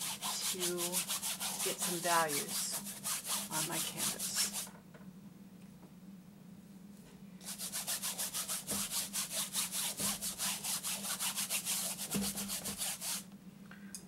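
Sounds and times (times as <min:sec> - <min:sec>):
scrubbing strokes on canvas: 0:00.0 - 0:04.7, 0:07.4 - 0:13.2.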